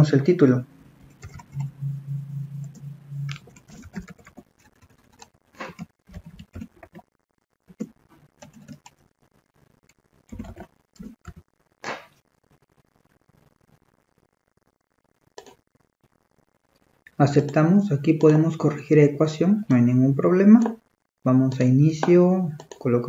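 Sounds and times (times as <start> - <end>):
low steady hum: 0.0 - 7.0
keyboard typing: 1.0 - 7.1, 7.7 - 9.0, 9.8 - 11.4, 15.4 - 15.6, 22.0 - 23.0.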